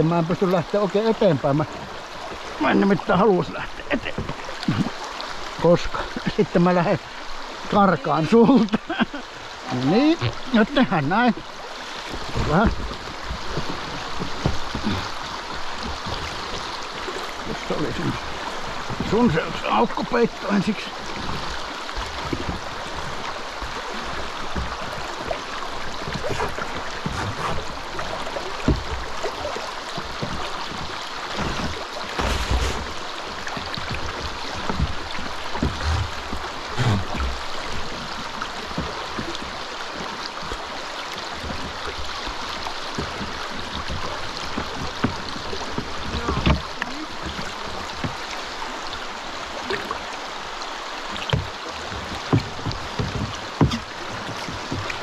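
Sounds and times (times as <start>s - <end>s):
river rapids rushing: 0.0s - 55.0s
low thumps and knocks: 12.0s - 19.6s, 26.0s - 40.1s, 42.9s - 48.2s, 51.3s - 55.0s.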